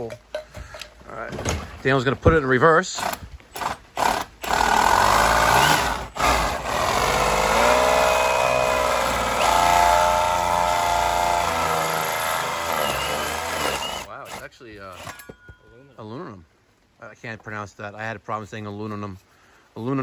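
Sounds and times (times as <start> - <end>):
cordless drill whining: 3.0 - 15.2.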